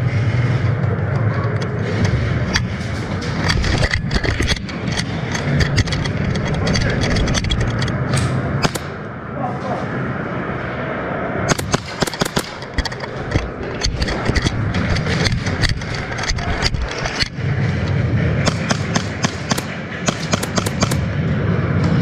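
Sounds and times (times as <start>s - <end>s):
steady low rumble: 0.0s - 22.0s
airsoft gunshots and bb hits: 7.4s - 8.9s, 11.5s - 17.3s, 18.4s - 21.0s.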